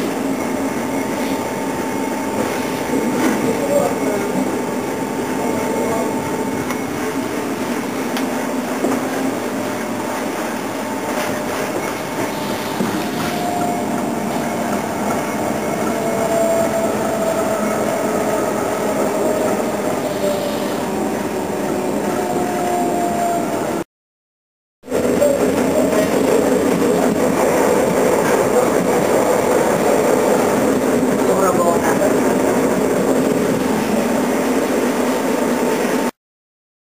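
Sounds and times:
faint train whine: 0:00.0 - 0:23.8
train rumbling on track: 0:00.0 - 0:23.8, 0:24.8 - 0:36.2.

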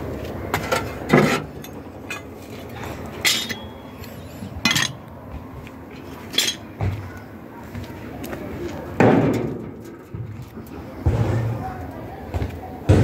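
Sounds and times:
metal clanking: 0:00.5 - 0:05.0.

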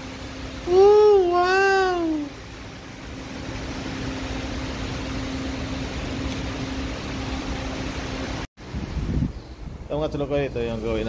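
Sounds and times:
extraction fan running: 0:00.0 - 0:11.0.

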